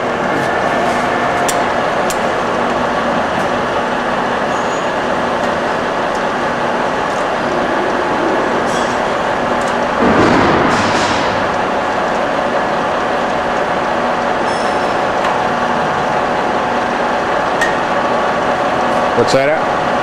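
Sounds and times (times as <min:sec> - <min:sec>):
lathe whirring: 0:00.0 - 0:10.0.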